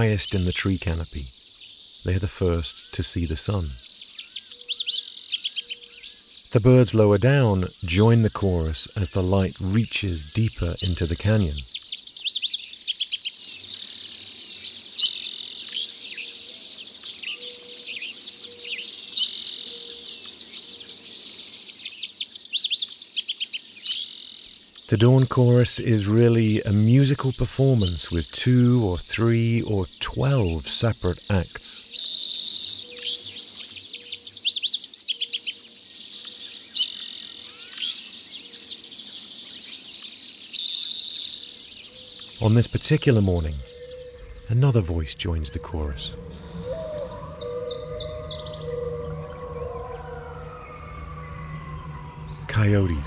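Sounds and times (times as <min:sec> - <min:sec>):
songbirds singing: 0:00.0 - 0:53.0
dry buzzing bird trill: 0:31.1 - 0:53.0.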